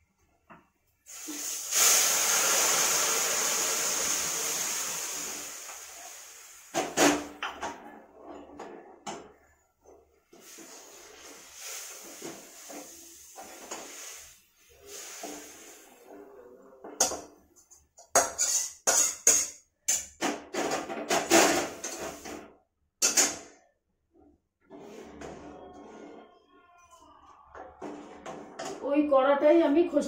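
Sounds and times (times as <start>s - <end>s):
food sizzling in hot oil: 1.1s - 6.9s, 10.4s - 16.0s.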